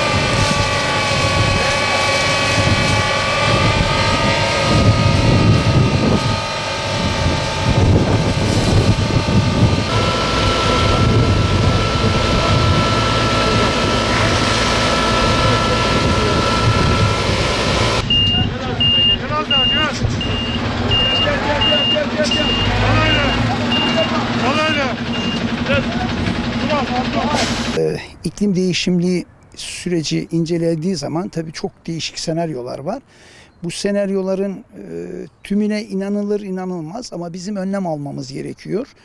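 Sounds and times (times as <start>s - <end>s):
truck engine and pump whining: 0.0s - 27.9s.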